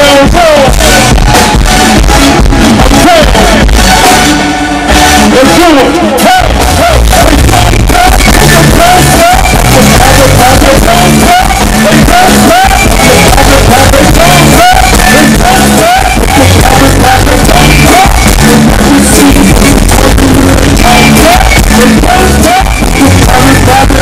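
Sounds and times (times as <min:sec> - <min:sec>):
live band playing: 0:00.0 - 0:24.0
person singing and shouting: 0:00.0 - 0:24.0
percussion beat: 0:06.2 - 0:24.0.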